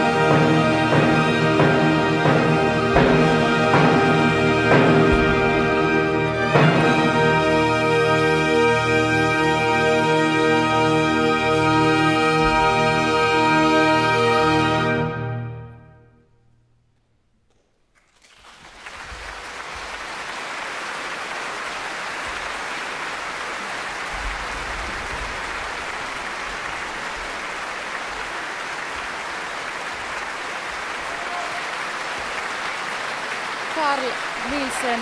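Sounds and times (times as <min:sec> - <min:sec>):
audience applause: 0:18.0 - 0:35.0.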